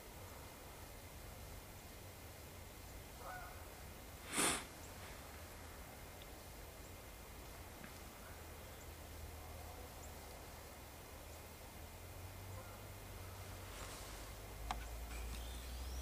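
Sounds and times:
deer snorting: 4.2 - 4.7.

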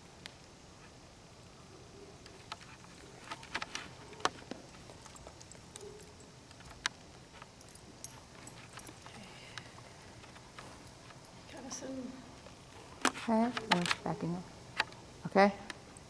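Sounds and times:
horse bridle bit clicking and clinking: 2.4 - 9.6.

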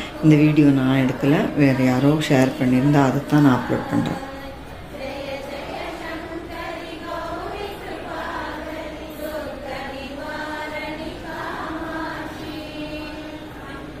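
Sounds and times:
women chanting in unison: 0.0 - 14.0.

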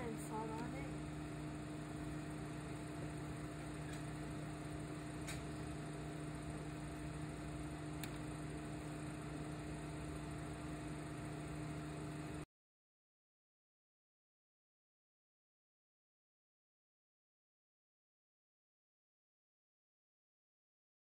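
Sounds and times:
low kitchen hum: 0.0 - 12.5.

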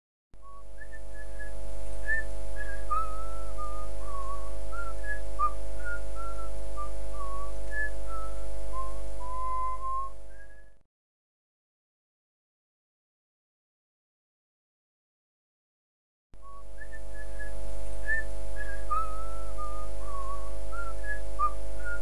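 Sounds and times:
person whistling a tune: 0.4 - 10.8, 16.4 - 22.0
low droning accompaniment: 0.7 - 10.7, 16.7 - 22.0.

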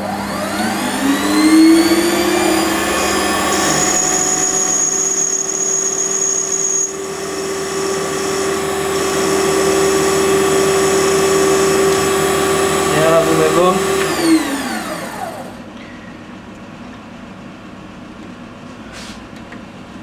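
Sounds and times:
metal lathe whining: 0.0 - 15.6.

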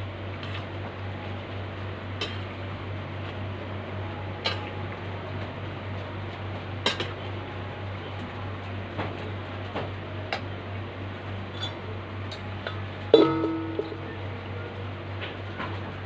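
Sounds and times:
electric fan hum: 0.0 - 16.0
metal utensil clinking in wok: 11.5 - 14.0.

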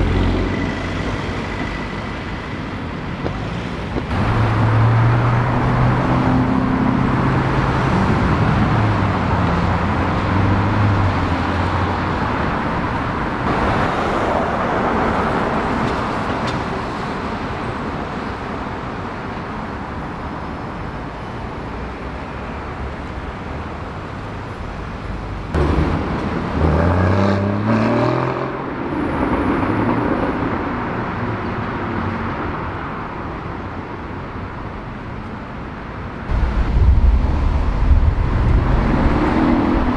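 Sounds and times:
sports car engines passing: 0.0 - 16.9, 25.0 - 34.4, 36.2 - 39.9
engine revving hard: 26.6 - 28.6.

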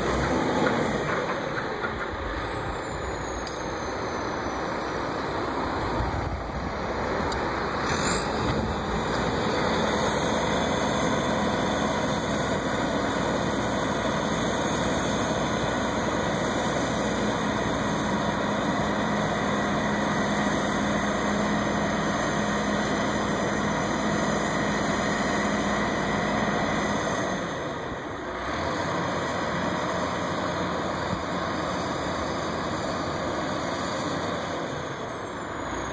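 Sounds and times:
crane engine running: 0.0 - 35.9.

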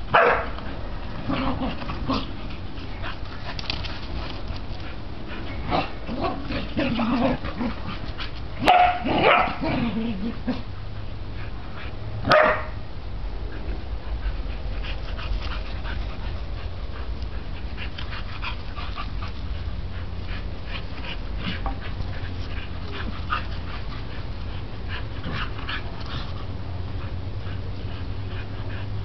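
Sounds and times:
puppies scuffling: 1.0 - 5.7.

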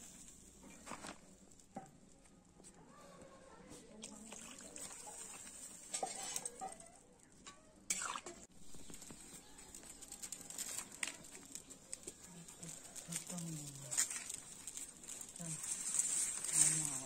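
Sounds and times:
metal utensils clinking on pots: 4.8 - 8.4.

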